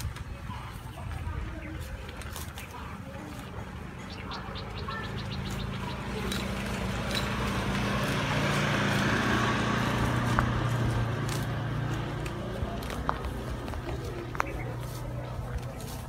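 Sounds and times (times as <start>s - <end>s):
small motorbike engine running: 3.3s - 16.0s.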